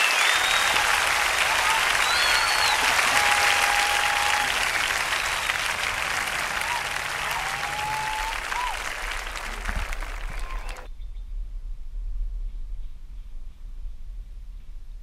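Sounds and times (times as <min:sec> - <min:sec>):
audience applause: 0:00.0 - 0:10.9
crowd cheering: 0:00.0 - 0:10.9
whistles: 0:00.0 - 0:10.9.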